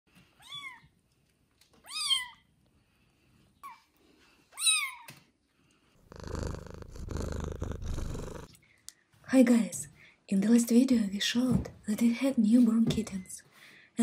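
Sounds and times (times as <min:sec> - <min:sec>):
kittens mewing: 0:06.0 - 0:08.5.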